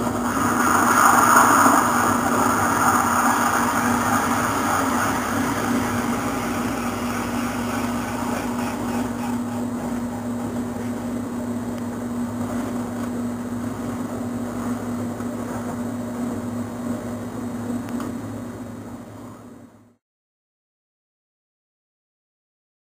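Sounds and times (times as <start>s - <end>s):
machine motor hum: 0.0s - 19.9s
hiss: 0.1s - 9.7s.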